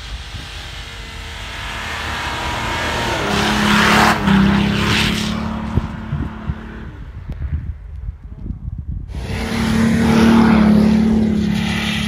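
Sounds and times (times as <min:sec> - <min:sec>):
wheels throwing snow hissing: 0:00.0 - 0:05.3
suv engine revving hard: 0:00.0 - 0:07.0, 0:09.1 - 0:12.0.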